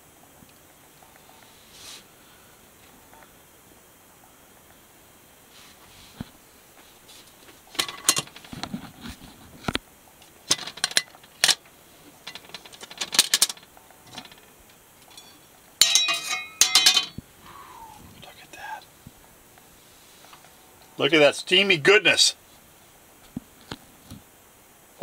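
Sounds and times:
metal lid ringing clatter: 0:07.8 - 0:08.4, 0:15.1 - 0:17.2.

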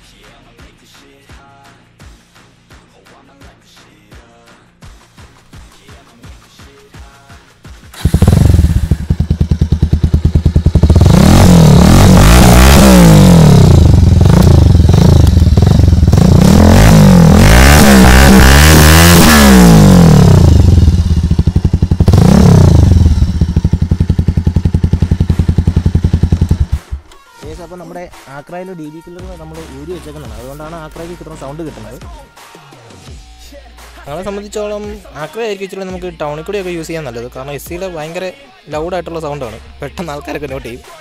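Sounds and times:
motorcycle engine revving: 0:07.9 - 0:27.0.

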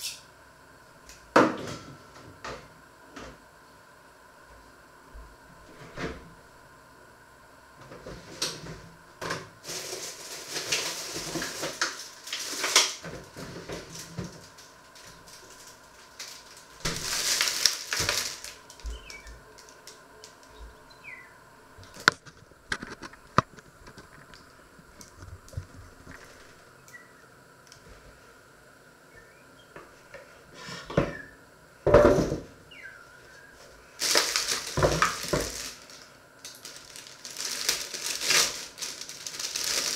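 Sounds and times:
rustling: 0:09.6 - 0:20.5, 0:33.6 - 0:39.9.

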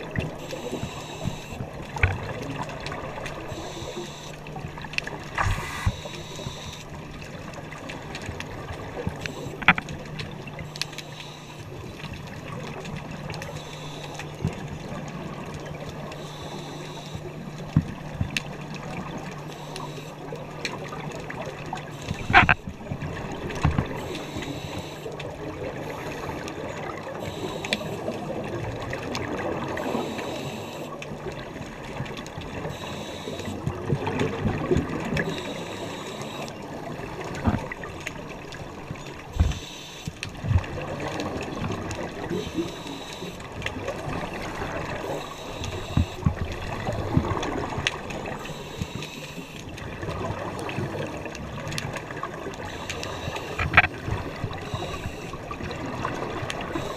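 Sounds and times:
underwater regulator bubbling: 0:00.0 - 0:07.4, 0:20.8 - 0:31.0
sharp clicks and knocks: 0:09.1 - 0:10.0, 0:22.1 - 0:22.7.

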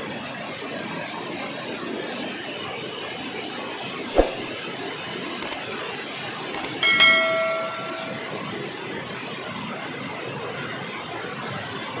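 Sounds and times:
sharp click: 0:06.6 - 0:06.8
bell-like chime: 0:06.8 - 0:08.7.

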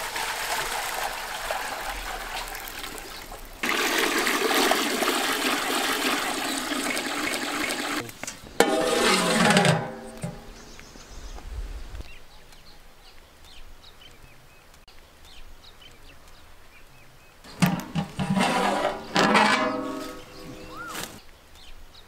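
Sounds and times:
cloth squeaking on metal pot: 0:08.3 - 0:10.6, 0:17.5 - 0:21.2
bird chirps: 0:10.4 - 0:17.6, 0:19.7 - 0:22.0.

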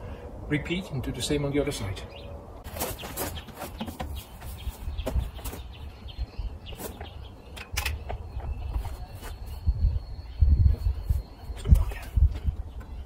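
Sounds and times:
footsteps on gravel: 0:02.6 - 0:05.8
wind rumble on microphone: 0:04.1 - 0:13.0.

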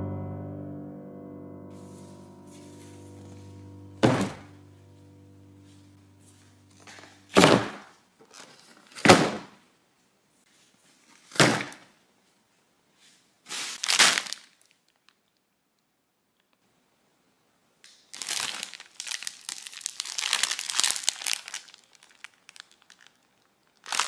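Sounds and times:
piano music: 0:00.0 - 0:07.4
boxes thudding on table: 0:04.0 - 0:04.5, 0:06.9 - 0:07.9, 0:08.9 - 0:09.6, 0:11.3 - 0:11.8.

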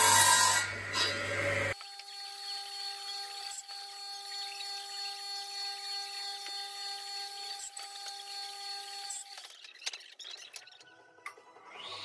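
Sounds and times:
power tool motor humming: 0:01.2 - 0:09.6.

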